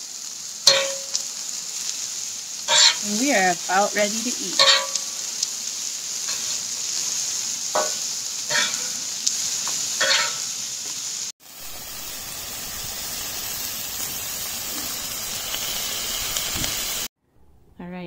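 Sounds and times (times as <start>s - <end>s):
food sizzling on a griddle: 0.0s - 17.1s
metal spatula scraping steel: 2.7s - 3.1s, 4.6s - 5.0s, 7.8s - 9.0s, 10.0s - 10.4s.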